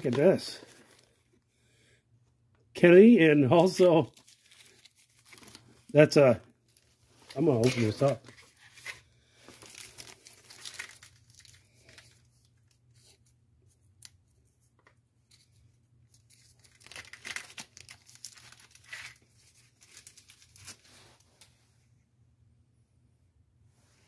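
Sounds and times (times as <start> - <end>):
packaging crinkling and tearing: 0.0 - 1.2, 3.6 - 13.1, 16.1 - 21.2
wrapping stretching: 3.7 - 12.2.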